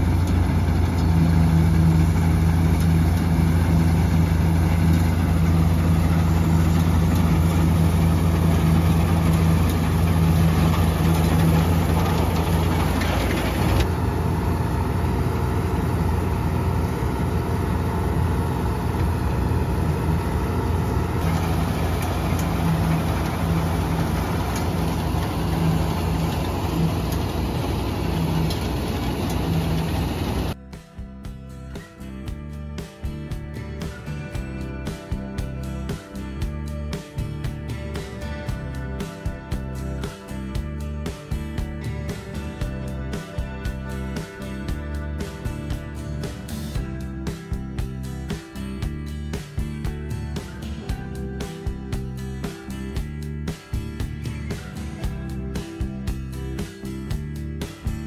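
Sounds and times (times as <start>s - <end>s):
combine harvester droning: 0.0s - 30.6s.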